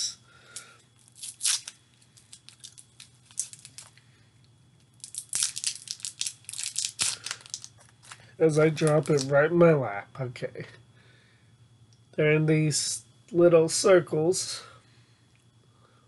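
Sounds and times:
plastic wrapper crinkling and tearing: 1.0s - 4.0s, 5.0s - 9.3s.

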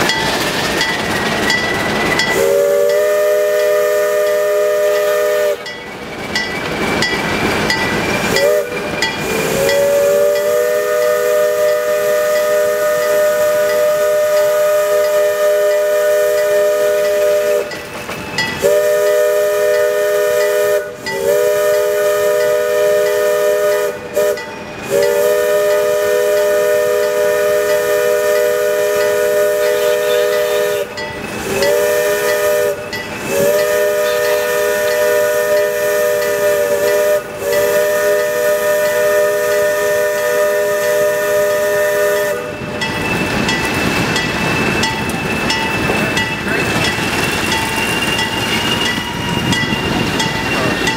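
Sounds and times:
locomotive air horn blasts: 2.3s - 5.7s, 8.3s - 17.7s, 18.6s - 42.7s.

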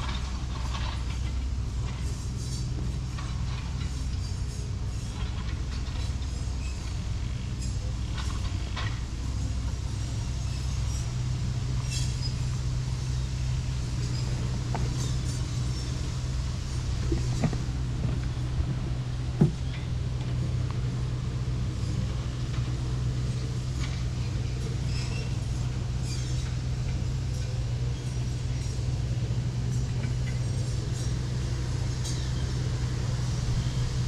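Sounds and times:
low background rumble: 0.0s - 34.0s.

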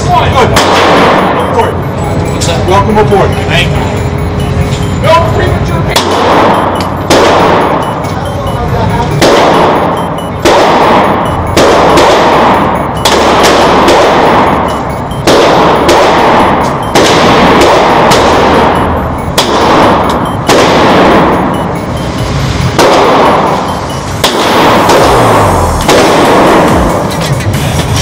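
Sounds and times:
pistol shots with booming reverberation: 0.4s - 1.8s, 5.9s - 8.1s, 9.2s - 21.5s, 22.7s - 27.1s.

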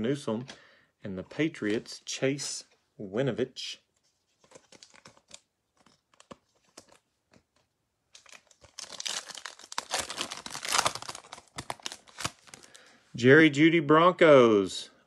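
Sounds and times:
foil wrapper crinkling: 8.1s - 12.9s.

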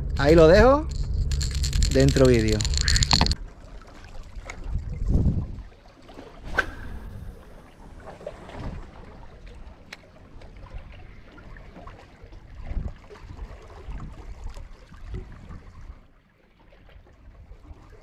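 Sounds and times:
sharp click: 0.2s - 3.4s
wind buffeting microphone: 4.4s - 5.7s.

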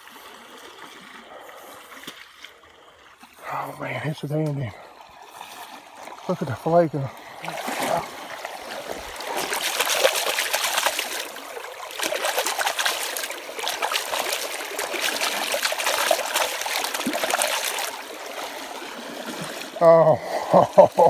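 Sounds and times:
creek water trickling: 0.0s - 21.0s
hand splashing in water: 7.4s - 18.0s.

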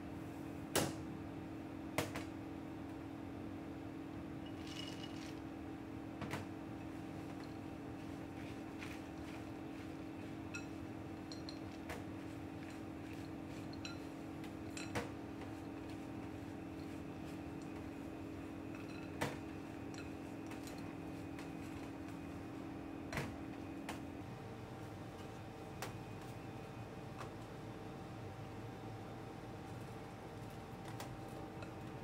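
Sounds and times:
steady low hum: 0.0s - 32.0s
spatula working dough in bowl: 6.8s - 22.3s.

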